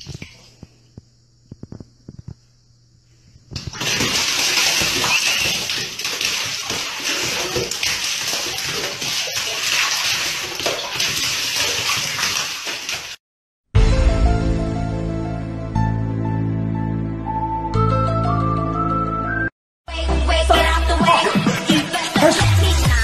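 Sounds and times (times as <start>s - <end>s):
water running into a bathtub: 3.6s - 13.2s.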